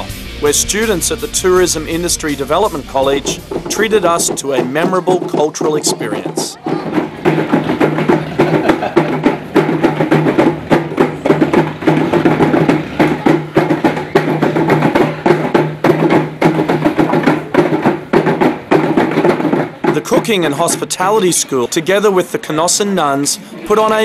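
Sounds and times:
hand drums beating fast rhythm: 0.0 - 23.1.

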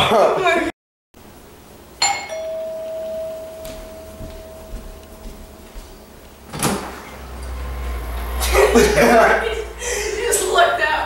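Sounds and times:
doorbell chime ringing: 2.0 - 6.5.

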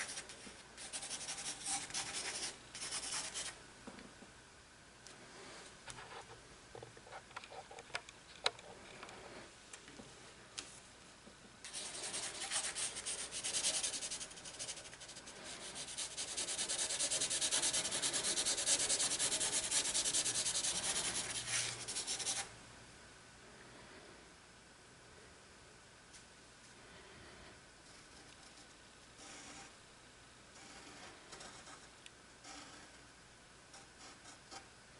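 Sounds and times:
pencil rubbing on paper: 0.8 - 3.5, 11.7 - 22.4.

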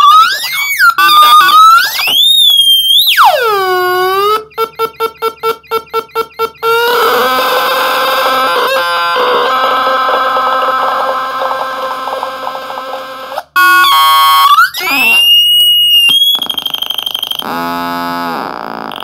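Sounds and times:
fast-pulsing high beep: 15.2 - 17.4.

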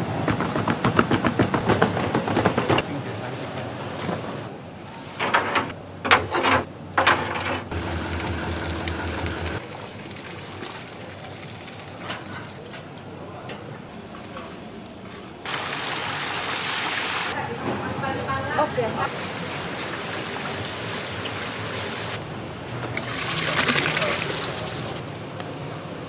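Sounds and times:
low motor hum: 7.7 - 9.6
voices: 17.3 - 19.1.

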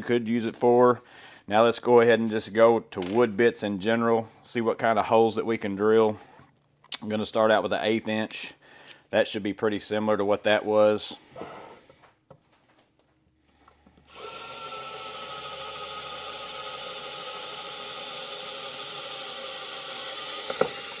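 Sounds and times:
electric screwdriver drilling wood: 14.1 - 21.0.

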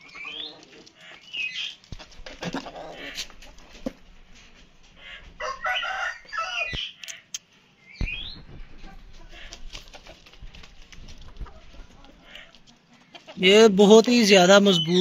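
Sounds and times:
chicken squawk: 0.0 - 3.6, 5.0 - 7.3, 8.8 - 10.2, 11.4 - 13.4
chicken calling: 0.0 - 4.0, 4.8 - 7.4, 8.0 - 10.4, 11.2 - 13.5.

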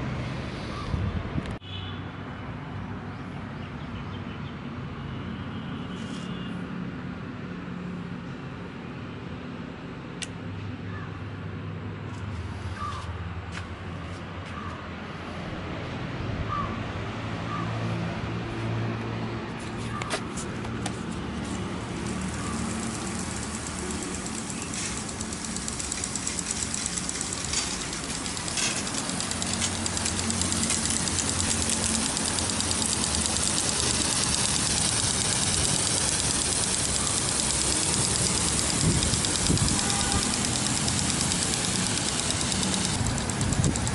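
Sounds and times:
sprinkler arm ticking: 21.4 - 43.9
steady low hum: 21.4 - 43.9
water spray hissing: 21.6 - 43.9.

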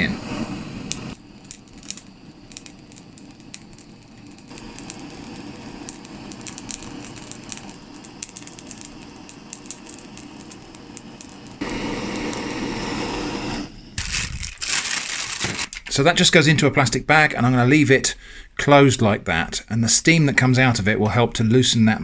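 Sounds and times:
blowtorch flame hissing: 0.0 - 15.7
pepper skin crackling: 0.8 - 12.4, 14.0 - 16.3.

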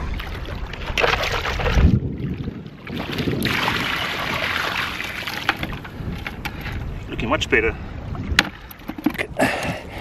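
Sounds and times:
water sloshing and splashing: 0.0 - 7.2, 7.8 - 9.4
water pouring from bucket: 0.1 - 5.8.

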